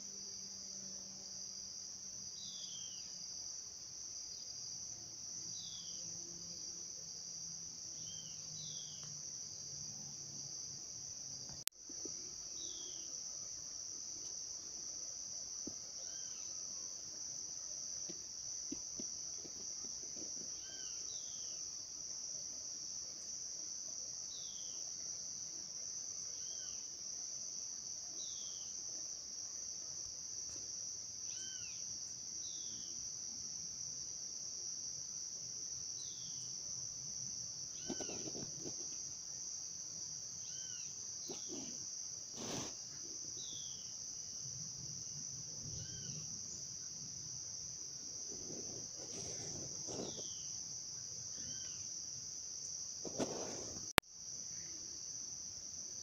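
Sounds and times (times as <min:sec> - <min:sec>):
insects buzzing: 0:00.0 - 0:56.0
soft rustles: 0:37.8 - 0:39.0, 0:41.3 - 0:42.8, 0:48.3 - 0:50.4, 0:53.0 - 0:53.9.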